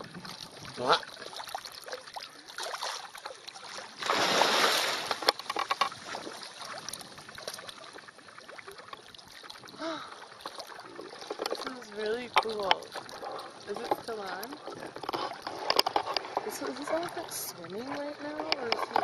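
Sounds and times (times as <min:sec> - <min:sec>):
elephant splashing through water: 0:00.0 - 0:08.8.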